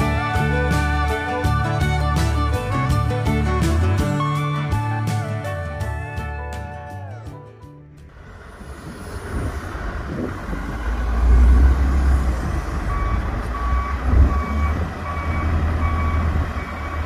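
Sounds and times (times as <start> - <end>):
diesel engine rumbling: 0.0 - 17.0
reversing alarm beeping: 12.8 - 17.0.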